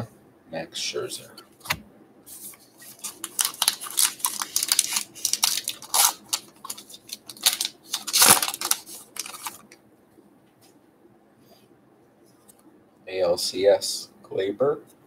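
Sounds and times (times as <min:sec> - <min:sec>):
card pack wrapper tearing: 0:02.8 - 0:09.8.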